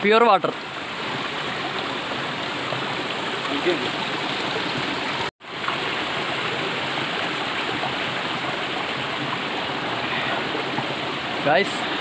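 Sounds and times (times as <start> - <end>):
stream flowing over stones: 0.0 - 12.0.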